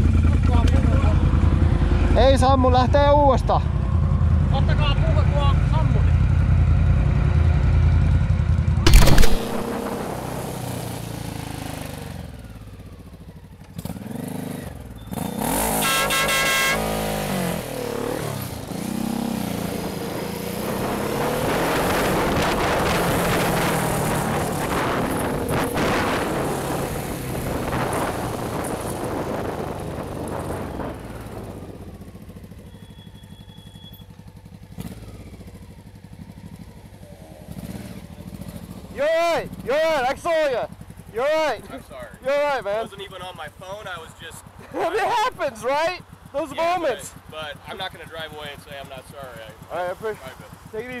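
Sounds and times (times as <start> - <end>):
motorcycle engine running: 0.0 - 51.0
horn honking: 15.1 - 17.2, 32.6 - 34.2
wind rush: 21.5 - 31.8.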